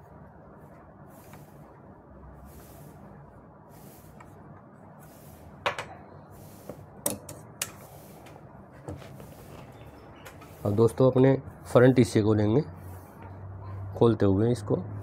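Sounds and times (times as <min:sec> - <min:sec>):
chalk scraping on fabric: 0:00.6 - 0:05.6, 0:06.3 - 0:07.0, 0:07.7 - 0:11.0, 0:11.7 - 0:13.4.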